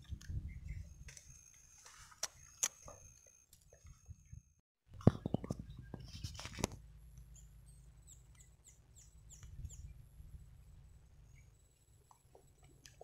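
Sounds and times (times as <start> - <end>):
small bird chirping: 0.0 - 4.5, 7.2 - 10.1, 11.2 - 12.6
faint low rumble: 5.3 - 13.0.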